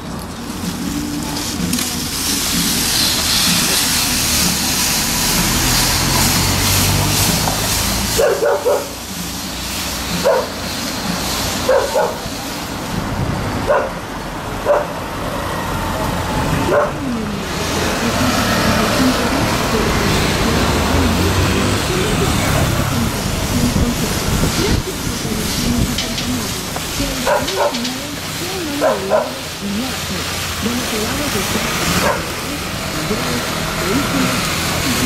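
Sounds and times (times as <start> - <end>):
motor vehicle passing: 0.0 - 35.0
dog barking: 8.1 - 9.0, 10.2 - 10.6, 11.6 - 12.3, 13.7 - 14.0, 14.6 - 15.0, 16.6 - 17.1, 27.2 - 27.9, 28.8 - 29.4, 32.0 - 32.3.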